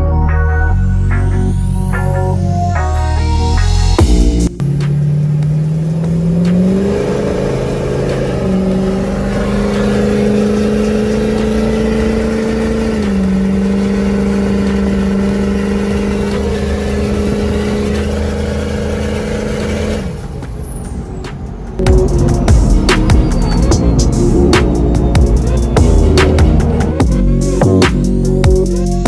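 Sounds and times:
truck engine droning: 0.0s - 29.0s.

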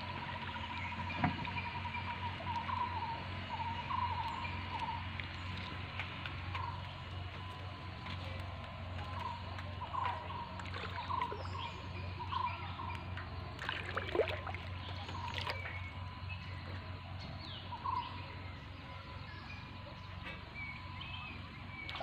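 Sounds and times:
water splashes: 0.0s - 16.9s, 21.7s - 22.0s
birds chirping: 0.0s - 22.0s
low hum: 0.0s - 22.0s.

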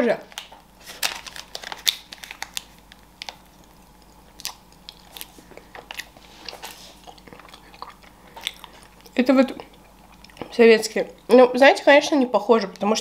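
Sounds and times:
person biting and chewing: 0.4s - 10.6s.

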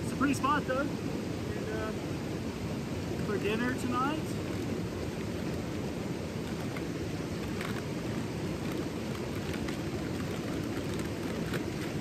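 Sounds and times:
low outdoor rushing noise: 0.0s - 12.0s
foil pouch crinkling: 7.4s - 12.0s.

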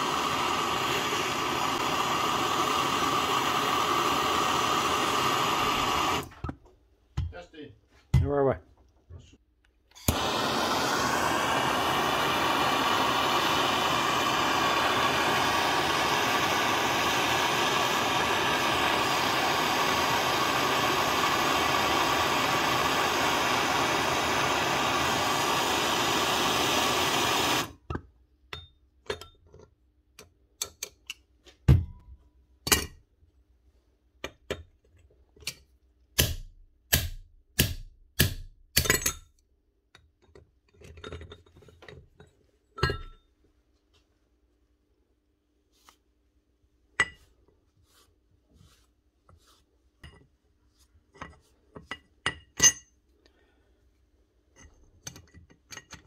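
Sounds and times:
blowtorch flame hissing: 0.0s - 6.3s, 10.0s - 27.8s.

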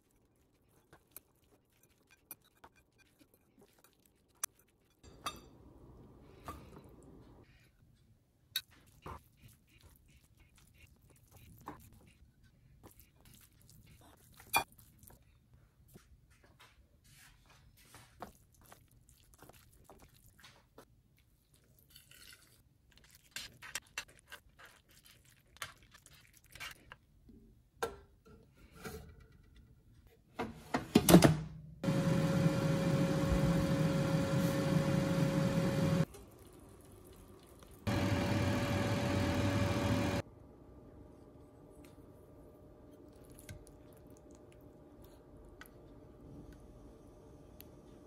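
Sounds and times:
air fryer whirring: 31.8s - 36.2s, 37.9s - 41.1s.

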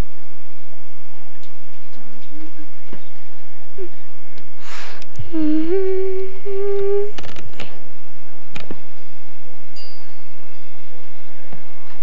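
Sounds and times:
person humming: 3.8s - 4.0s, 4.7s - 7.3s.

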